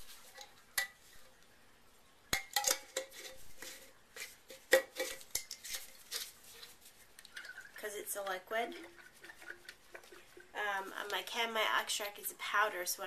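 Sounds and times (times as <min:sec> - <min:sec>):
glassware clinking and knocking: 0:02.3 - 0:03.8, 0:04.5 - 0:05.8.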